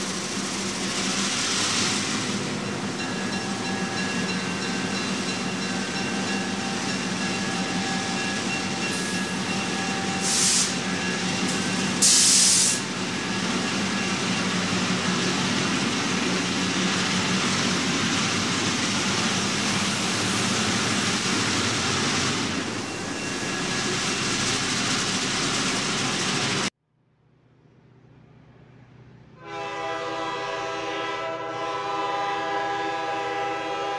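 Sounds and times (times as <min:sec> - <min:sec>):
diesel locomotive running: 0:00.0 - 0:26.7
short loud hisses: 0:10.2 - 0:10.8.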